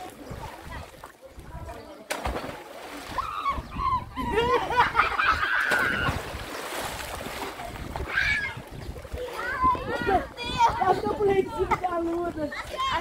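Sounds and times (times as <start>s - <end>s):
water splashing: 0.0s - 13.0s
children shrieking and shouting: 3.0s - 6.4s, 8.0s - 11.8s, 12.4s - 13.0s.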